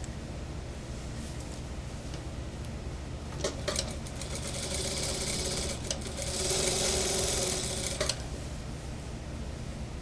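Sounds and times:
sewing machine stitching: 3.4s - 8.2s.

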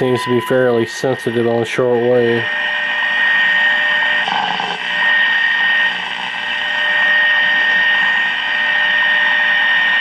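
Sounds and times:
high whistle: 0.0s - 0.8s
radio static hissing: 3.8s - 8.4s.

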